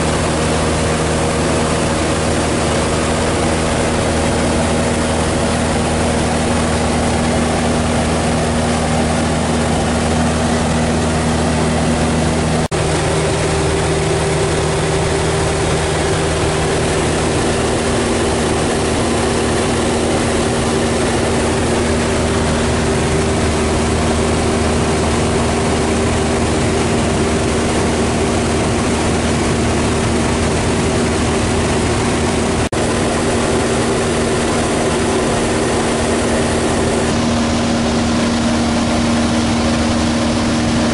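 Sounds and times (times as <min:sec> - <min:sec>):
airplane engine and propeller droning: 0:00.0 - 0:40.9.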